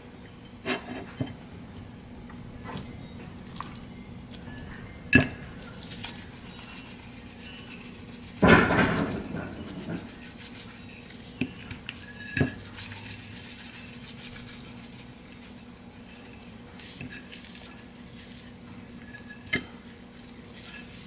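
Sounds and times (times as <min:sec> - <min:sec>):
handling raw meat: 0:02.6 - 0:04.5.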